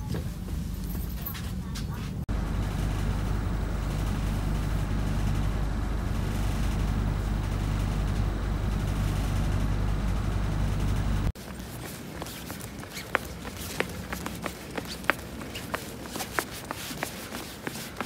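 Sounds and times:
bus engine idling: 0.2s - 11.4s.

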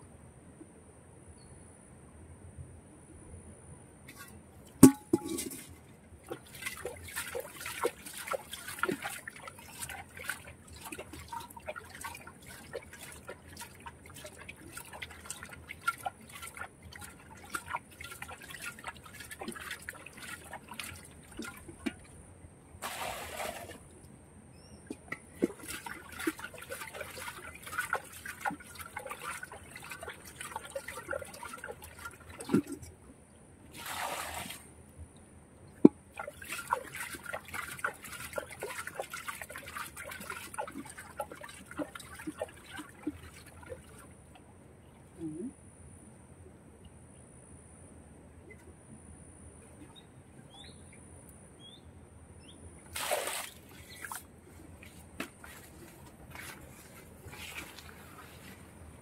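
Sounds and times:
hands sloshing in muddy water: 4.1s - 22.1s, 24.9s - 32.9s, 36.1s - 44.2s, 52.9s - 59.0s.

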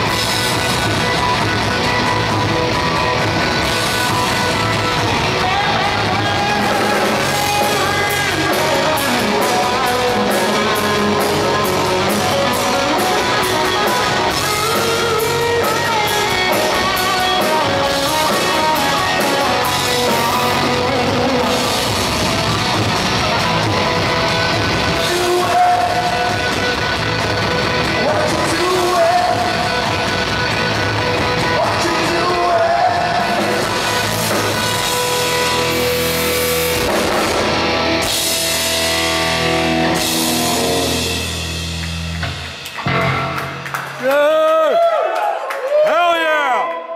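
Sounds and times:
metal band playing live: 0.0s - 44.5s
sung vocals: 4.9s - 22.0s, 24.9s - 26.5s, 27.9s - 30.0s, 31.3s - 34.6s.

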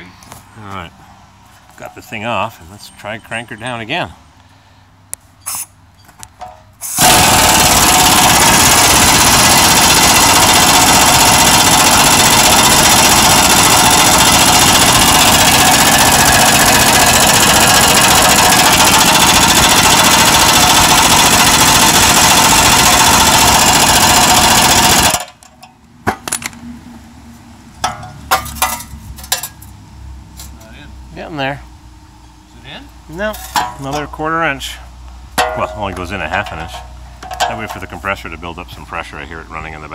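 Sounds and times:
air impact wrench hammering: 6.4s - 25.4s.

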